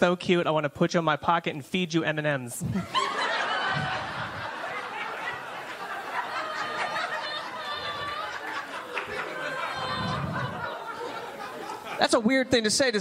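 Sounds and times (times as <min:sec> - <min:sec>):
audience laughing: 0:02.7 - 0:12.3.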